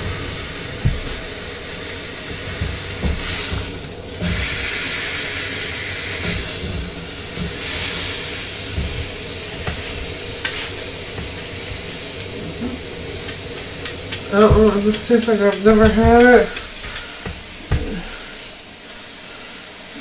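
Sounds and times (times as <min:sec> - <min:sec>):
meat sizzling in frying pan: 0:00.0 - 0:20.0
tongs knocking pan: 0:13.2 - 0:18.2.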